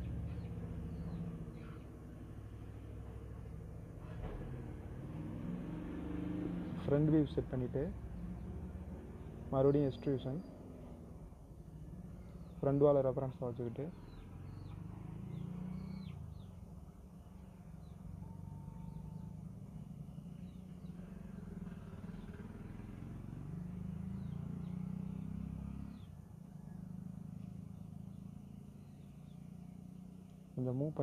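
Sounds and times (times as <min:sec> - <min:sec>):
faint bird chirps: 0:00.0 - 0:02.2, 0:12.0 - 0:13.1, 0:13.8 - 0:23.1, 0:23.7 - 0:30.8.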